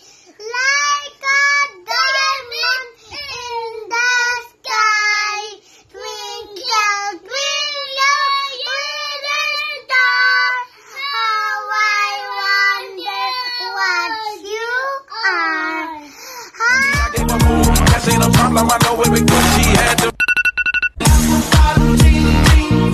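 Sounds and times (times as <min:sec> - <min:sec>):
young children singing: 0:00.7 - 0:15.7, 0:16.6 - 0:18.6.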